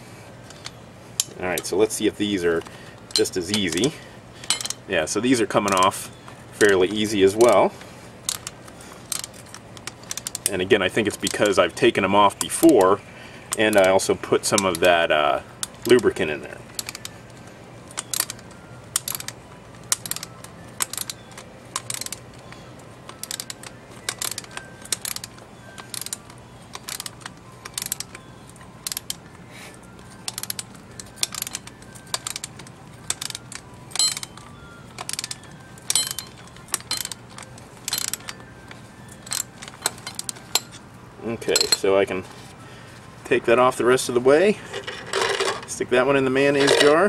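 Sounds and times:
ratchet wrench clicking: 0:02.5 - 0:04.8, 0:08.3 - 0:11.6, 0:12.4 - 0:15.0, 0:16.8 - 0:17.1, 0:17.9 - 0:28.2, 0:28.8 - 0:29.2, 0:30.2 - 0:40.8.

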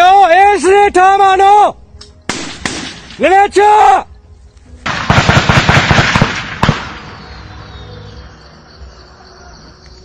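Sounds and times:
automatic gunfire: 0:02.3 - 0:03.2, 0:04.9 - 0:07.0.

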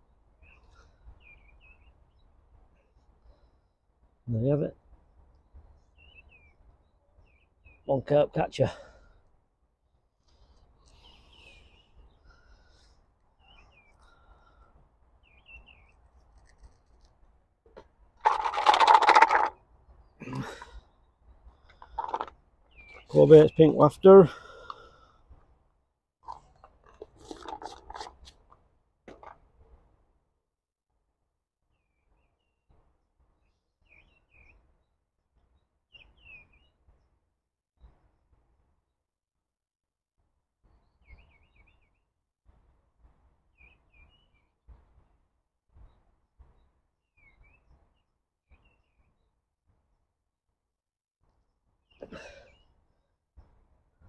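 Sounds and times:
faint bird chirps: 0:00.0 - 0:03.7, 0:05.7 - 0:07.9, 0:10.2 - 0:17.1, 0:22.7 - 0:23.8, 0:33.4 - 0:37.0, 0:40.7 - 0:42.1, 0:43.5 - 0:44.6, 0:45.8 - 0:49.4, 0:51.8 - 0:53.6.

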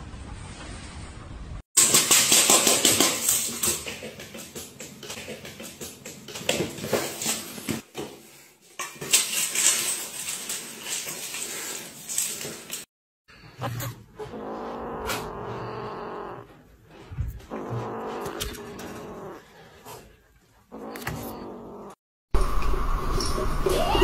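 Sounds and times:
dry cat food rattling in metal bowl: 0:09.0 - 0:12.8.

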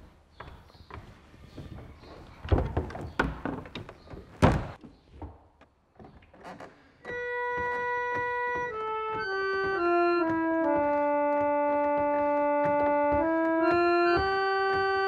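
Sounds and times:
reed organ playing sustained chords: 0:07.1 - 0:15.0.

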